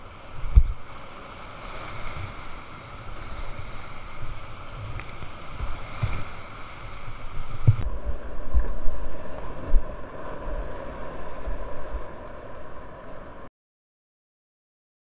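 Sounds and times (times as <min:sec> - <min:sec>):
whitewater rapids rushing: 0:00.0 - 0:07.8
wind buffeting microphone: 0:00.0 - 0:09.0
water thumping against boat: 0:00.4 - 0:00.9, 0:03.2 - 0:07.8.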